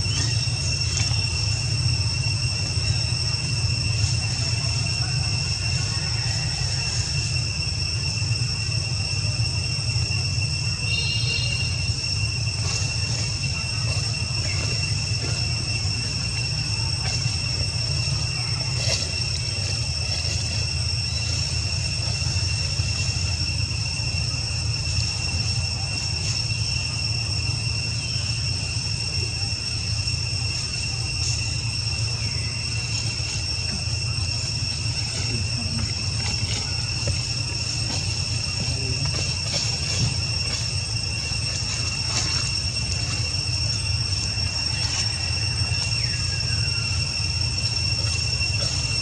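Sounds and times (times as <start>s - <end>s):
high-pitched insect drone: 0.0s - 49.0s
low steady rumble: 0.0s - 49.0s.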